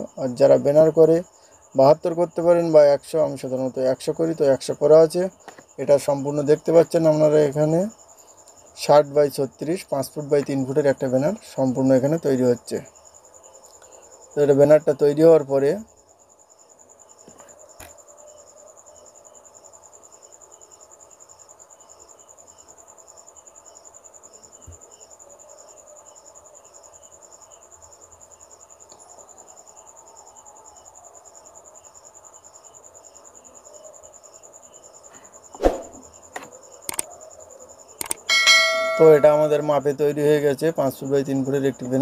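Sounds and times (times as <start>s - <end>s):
crickets chirping: 0.0s - 42.0s
sharp knock: 35.6s - 36.0s, 38.3s - 39.4s.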